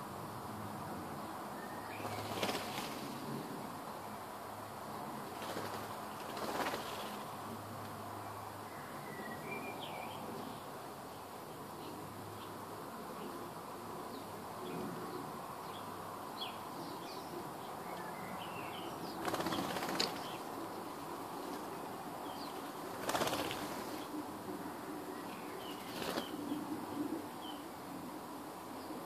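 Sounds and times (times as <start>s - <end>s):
bird wings flapping: 2.0s - 3.4s, 5.2s - 7.4s, 19.1s - 20.6s, 22.6s - 24.1s, 25.7s - 26.5s.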